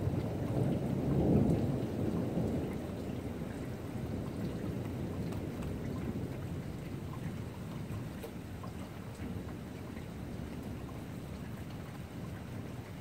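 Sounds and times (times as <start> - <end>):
thunder rumbling: 0.0 - 7.1
light rain patter: 0.0 - 13.0.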